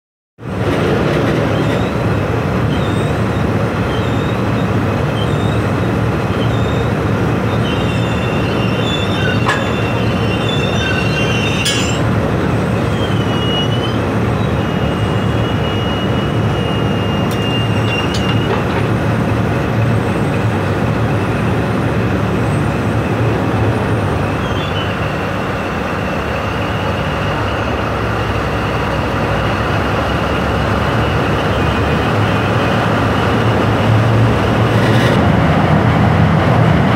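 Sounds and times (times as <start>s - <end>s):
drilling rig machinery rumble: 0.5s - 36.9s
high squeals: 2.6s - 18.7s.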